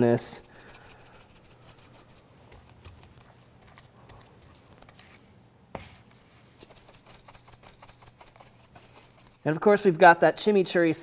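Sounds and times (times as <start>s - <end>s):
spice patter on meat: 0.2s - 2.2s, 6.6s - 10.9s.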